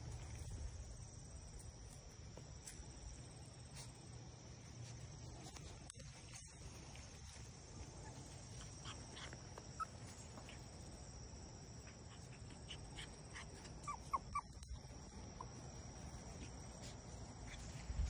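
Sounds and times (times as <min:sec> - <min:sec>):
insects droning: 0:00.0 - 0:18.0
puppies whimpering: 0:08.0 - 0:10.7, 0:12.1 - 0:15.6.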